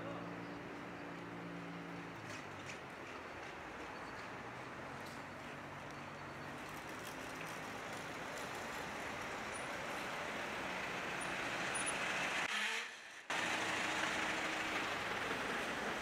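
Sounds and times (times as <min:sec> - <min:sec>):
road traffic: 0:00.0 - 0:16.0.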